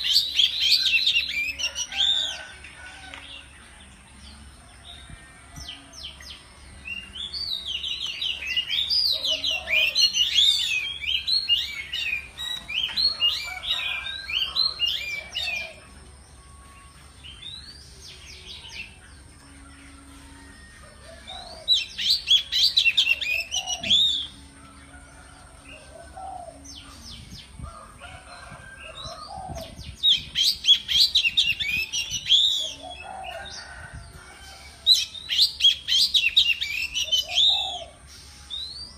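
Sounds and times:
magpie-robin whistled song: 5.6 - 15.8, 19.7 - 24.5, 28.4 - 33.8, 34.6 - 38.9.

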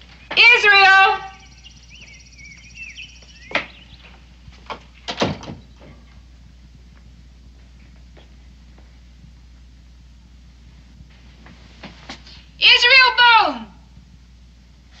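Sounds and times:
birds chirping: 0.0 - 9.8
wooden door closing: 4.6 - 6.1.

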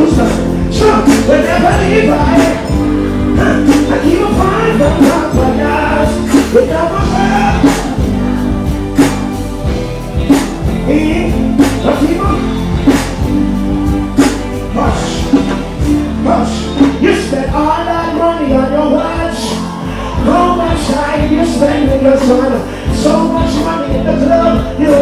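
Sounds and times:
man singing into microphone: 0.0 - 8.0, 17.2 - 25.0
band playing live: 0.0 - 25.0.

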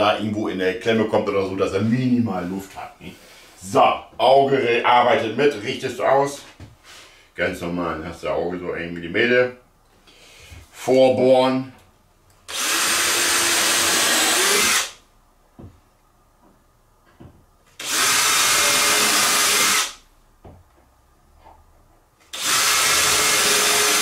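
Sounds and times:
power drill boring into wood: 12.5 - 15.0, 17.8 - 20.0, 22.3 - 24.0.

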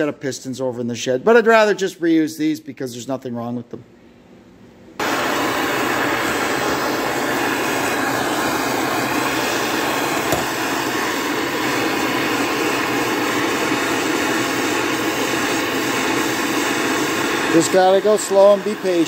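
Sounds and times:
gas torch burning: 5.0 - 19.0.

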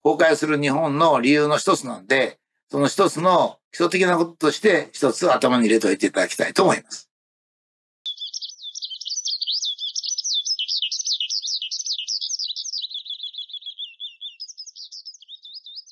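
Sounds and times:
skylark song: 8.1 - 15.9.

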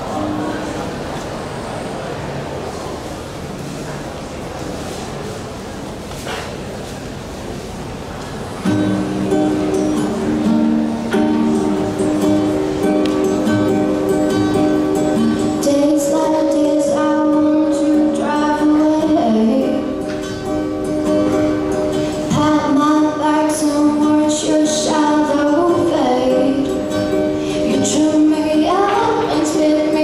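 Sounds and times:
acoustic guitar strumming: 8.5 - 30.0
girl singing into a microphone: 15.2 - 20.4, 22.1 - 30.0.

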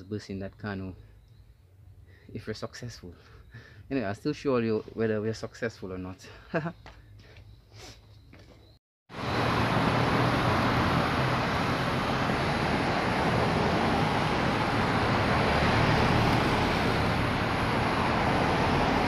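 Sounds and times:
steady rushing noise: 9.1 - 19.0.

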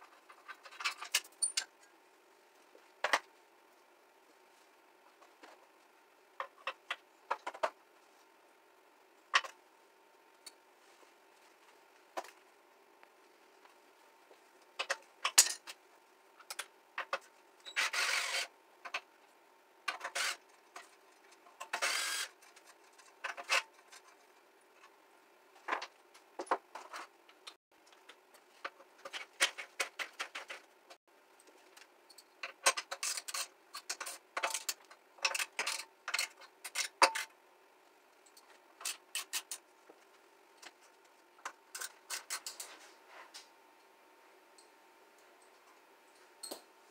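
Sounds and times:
hand tools and parts clattering: 0.0 - 1.9, 14.8 - 15.8, 31.4 - 37.3, 38.3 - 39.7.

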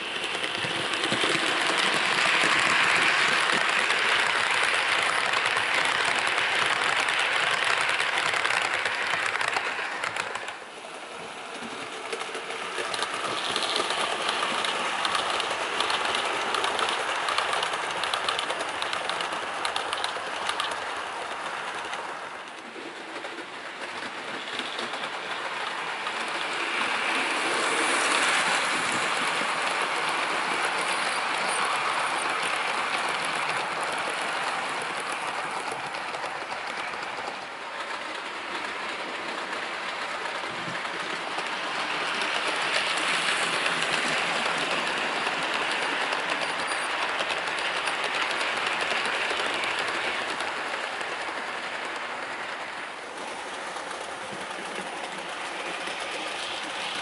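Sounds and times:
model train rolling on track: 0.0 - 57.0.

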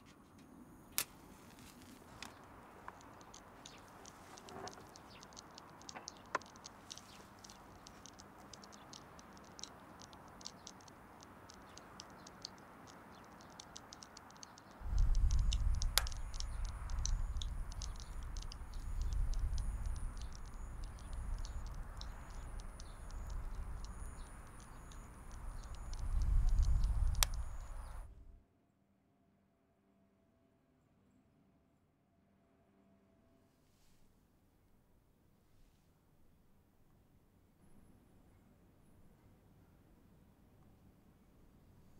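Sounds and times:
fire crackling: 1.0 - 28.1.

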